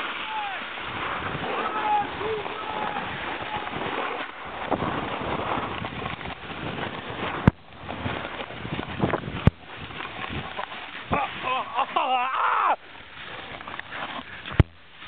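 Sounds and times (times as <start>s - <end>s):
wind on microphone: 0.0s - 11.8s
snowboard scraping on snow: 0.0s - 12.0s, 12.8s - 15.0s.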